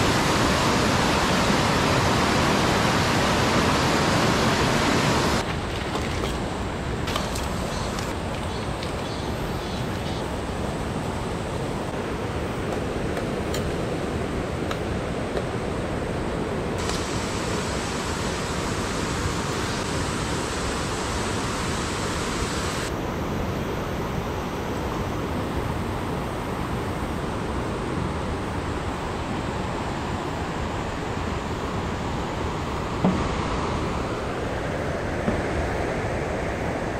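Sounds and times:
stream rushing over rocks: 0:00.0 - 0:09.1, 0:14.1 - 0:22.9.

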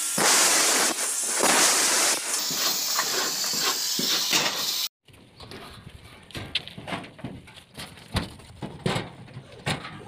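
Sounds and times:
angle grinder cutting metal: 0:00.0 - 0:04.9.

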